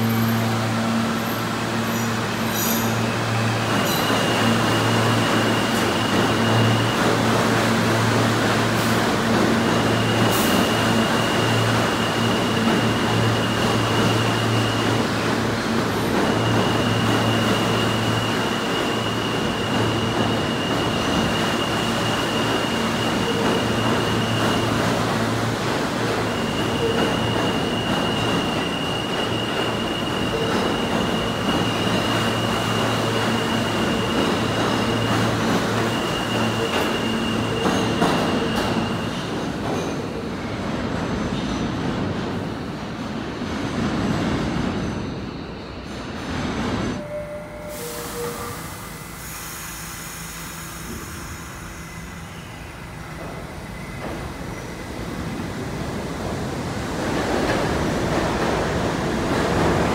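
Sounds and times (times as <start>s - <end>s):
subway train wheels rumbling on rails: 0.0s - 59.9s.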